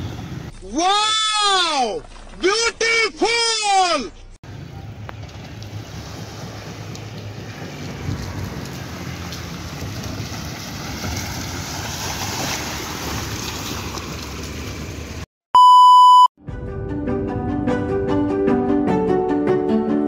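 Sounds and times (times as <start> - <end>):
tyres splashing through puddles: 0.0 - 2.9, 4.5 - 15.3
car engine rumble: 4.1 - 15.3
electronic beep: 15.6 - 16.3.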